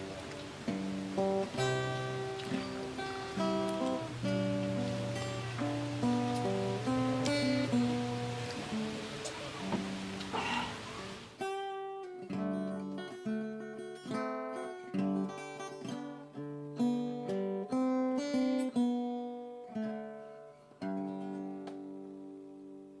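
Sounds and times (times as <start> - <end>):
acoustic guitar melody: 0.0 - 23.0.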